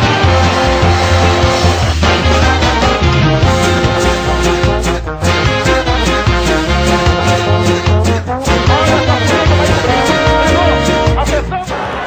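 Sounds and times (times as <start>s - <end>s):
upbeat brass music: 0.0s - 12.0s.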